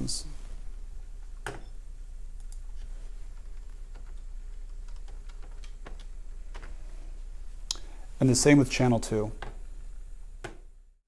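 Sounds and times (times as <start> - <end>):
low steady hum: 0.0 - 11.0
keyboard and mouse clicks: 2.4 - 6.7.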